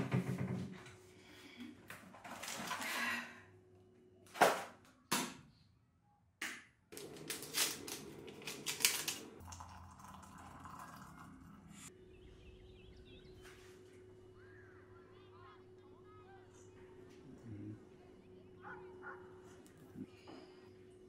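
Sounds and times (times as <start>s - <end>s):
kitchen things clattering: 7.0s - 10.1s.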